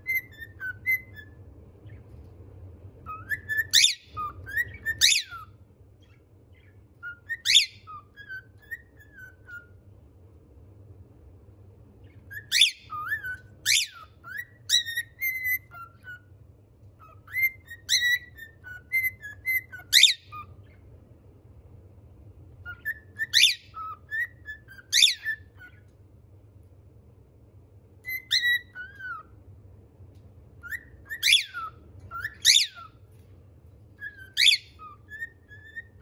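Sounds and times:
cockatiel whistling and chirping: 0.0s - 2.3s, 3.0s - 9.8s, 12.0s - 20.8s, 22.6s - 25.9s, 27.9s - 29.4s, 30.6s - 36.0s.

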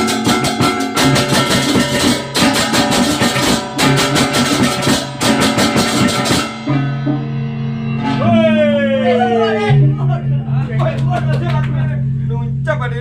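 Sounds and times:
drums: 0.0s - 11.3s
gamelan ensemble playing: 0.0s - 12.3s
clashing cymbals: 0.0s - 12.7s
struck gongs ringing: 0.0s - 13.0s.

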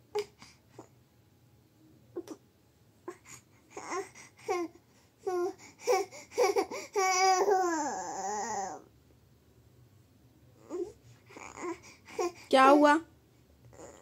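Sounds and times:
baby fussing and crying: 3.0s - 8.9s, 10.6s - 12.5s.

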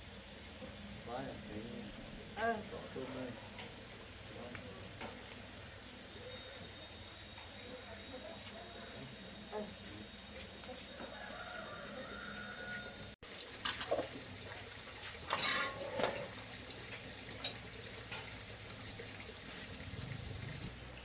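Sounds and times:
metal tools clinking: 15.3s - 16.3s.

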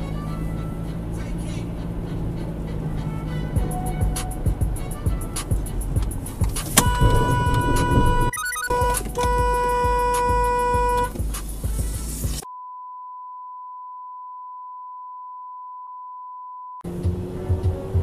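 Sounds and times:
car cabin noise: 0.9s - 12.4s
held pitched tone: 6.8s - 11.1s
censor bleep: 6.9s - 10.4s, 12.4s - 16.8s.

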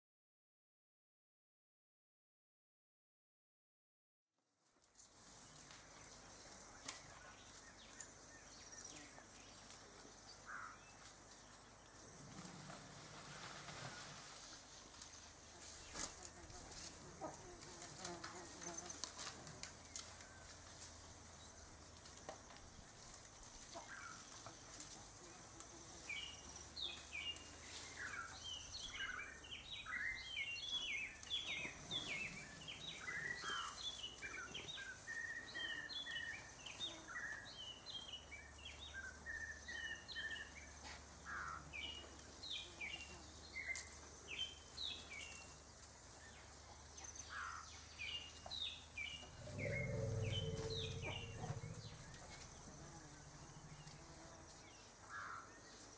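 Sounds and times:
small birds chirping: 5.2s - 12.3s, 19.8s - 55.9s.

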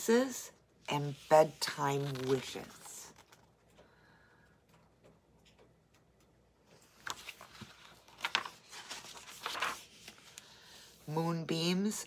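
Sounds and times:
book page turning rustle: 1.0s - 3.6s, 6.8s - 10.6s.

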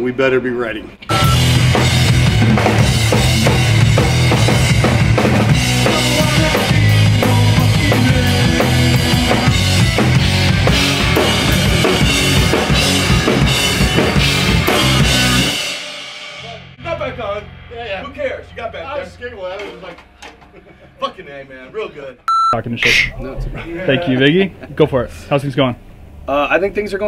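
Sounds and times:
rock band playing: 1.1s - 18.6s.

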